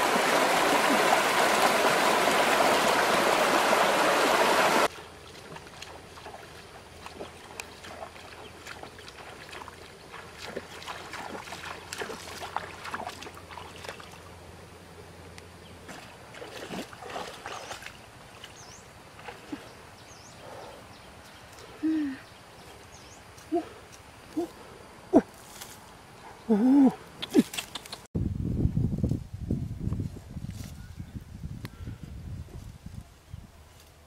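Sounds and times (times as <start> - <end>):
water splashing from wading: 0.0 - 14.3, 15.9 - 19.7.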